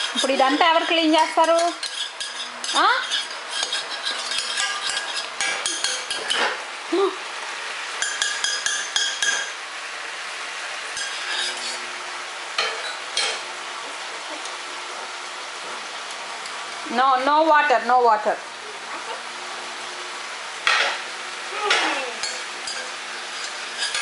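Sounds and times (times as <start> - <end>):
utensil clinking against saucepan: 0.0 - 6.6, 8.0 - 9.5, 21.7 - 24.0.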